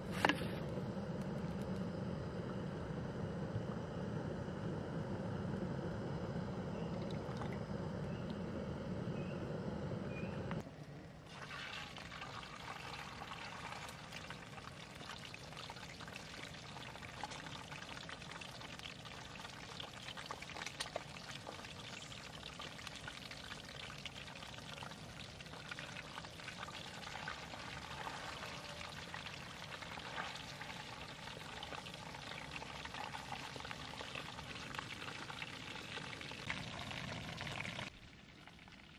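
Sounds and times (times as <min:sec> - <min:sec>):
oil poured into frying pan: 0:11.3 - 0:18.4
fish sizzling in hot oil: 0:11.3 - 0:37.9.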